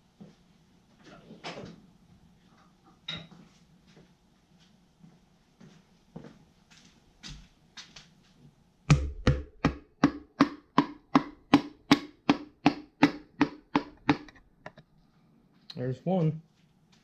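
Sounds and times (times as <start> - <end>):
hammer handle tapping piston: 8.9 - 14.4.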